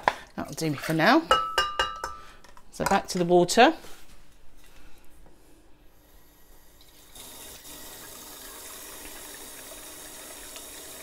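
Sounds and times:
tap water running into sink: 6.8s - 11.0s.

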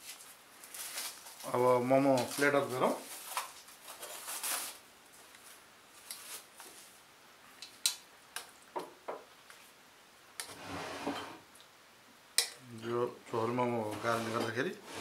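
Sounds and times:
soft rustle of movement: 0.0s - 7.1s.

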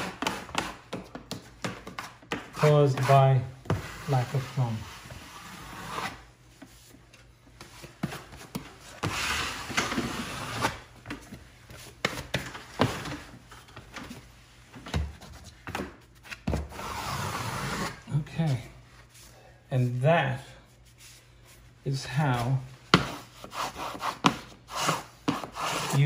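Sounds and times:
wallpaper rubbing against wall: 2.6s - 6.9s, 8.2s - 10.9s, 16.7s - 18.1s, 23.0s - 26.0s.

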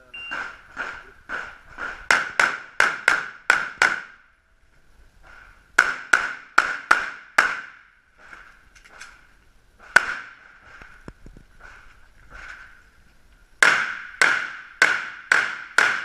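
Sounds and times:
shot timer beep: 0.0s - 0.6s
handgun shots: 9.8s - 10.4s.

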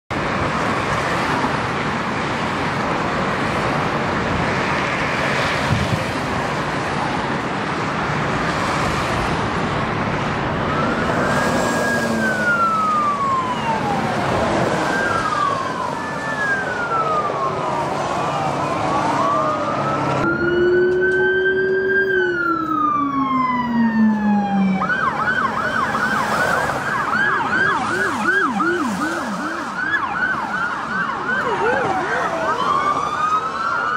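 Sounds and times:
freeway traffic noise: 0.1s - 33.9s
police sirens wailing: 0.2s - 33.9s
siren yelping: 10.6s - 33.9s.

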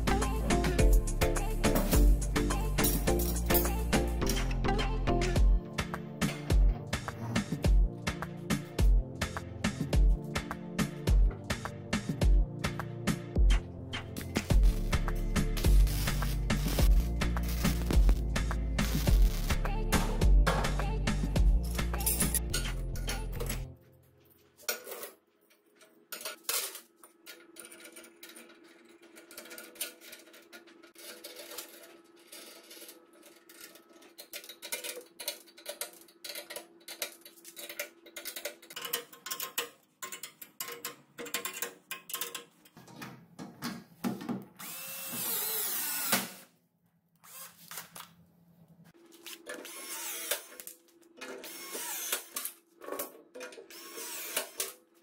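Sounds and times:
steel parts clinking and knocking: 2.8s - 4.5s, 24.6s - 42.8s.

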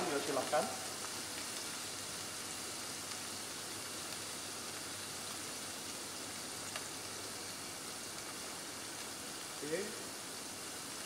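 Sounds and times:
scallops sizzling in oil: 0.0s - 11.0s.

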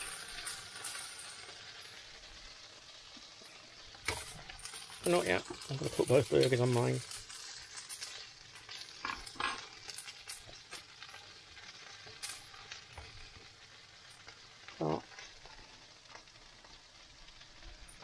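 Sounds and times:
utensils clinking on plates: 0.0s - 2.0s, 3.4s - 11.3s
food sizzling in a frying pan: 0.0s - 18.0s.

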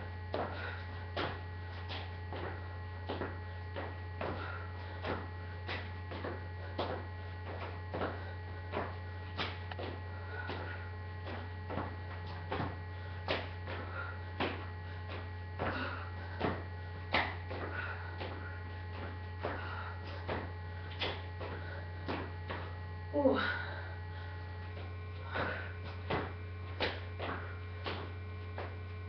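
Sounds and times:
low electrical hum: 0.0s - 29.0s
sneakers thudding on concrete: 24.6s - 28.8s.

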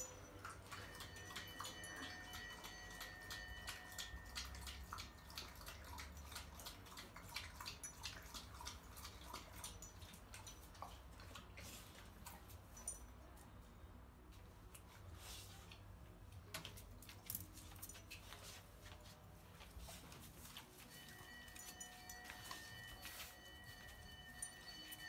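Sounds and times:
dog lapping water: 4.2s - 12.2s.

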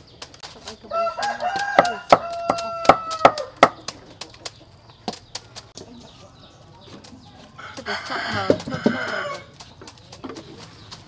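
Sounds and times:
knife chopping on wooden board: 0.4s - 5.4s, 7.8s - 10.6s
chicken calling: 0.8s - 3.9s, 7.4s - 9.7s.

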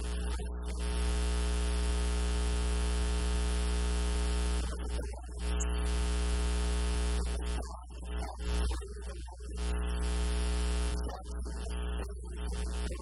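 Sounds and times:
voice: 0.0s - 0.8s, 4.6s - 5.8s, 7.2s - 10.1s, 10.9s - 13.0s
electrical buzz with mains hum: 0.0s - 13.0s.

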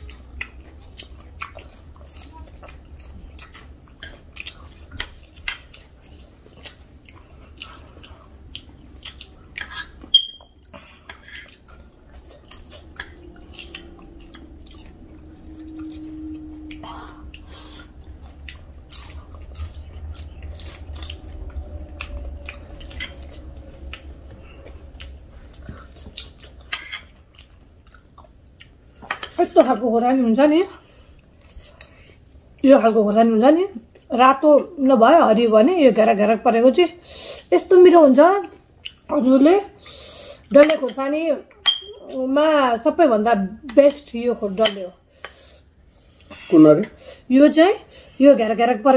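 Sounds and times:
chewing and crunching snack food: 0.0s - 29.4s.

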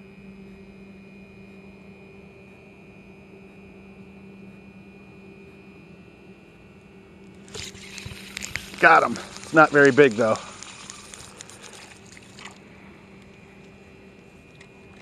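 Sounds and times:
faint steady hum: 0.0s - 15.0s
constant hiss: 7.2s - 15.0s.

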